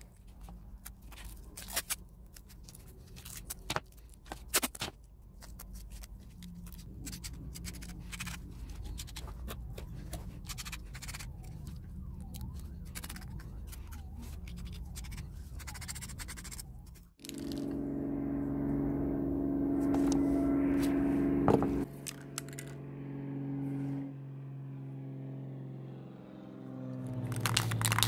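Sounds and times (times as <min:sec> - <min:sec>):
steady low hum: 0:17.1 - 0:26.1.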